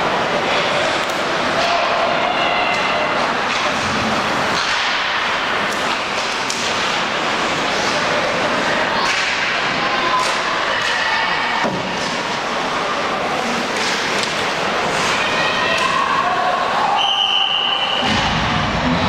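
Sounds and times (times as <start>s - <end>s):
hockey sticks and puck knocking: 3.5s - 7.0s, 9.0s - 11.0s
players shouting: 7.4s - 19.0s.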